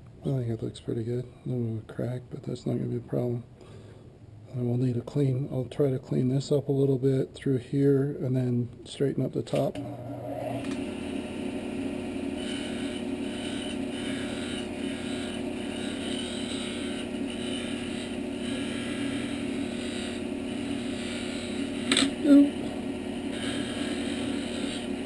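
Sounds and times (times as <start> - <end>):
turning tool cutting hiss: 9.8 - 25.0
wood lathe humming: 9.8 - 25.0.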